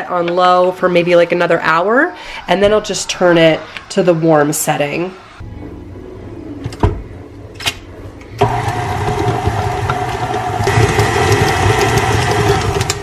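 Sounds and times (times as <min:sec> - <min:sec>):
stand mixer motor running: 0:08.4 - 0:13.0.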